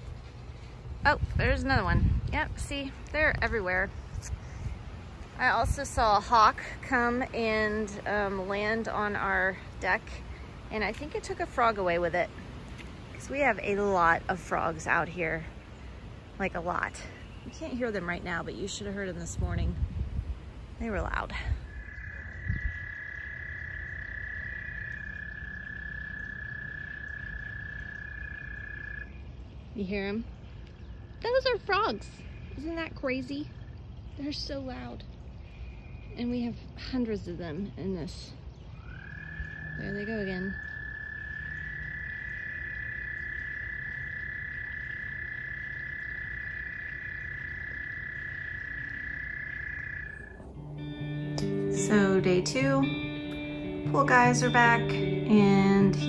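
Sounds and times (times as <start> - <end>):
frogs trilling: 20.9 - 51.1.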